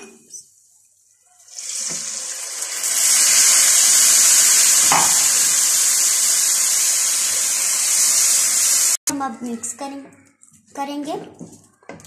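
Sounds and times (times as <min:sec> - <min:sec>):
water sizzling in hot pan: 0:01.4 - 0:09.0.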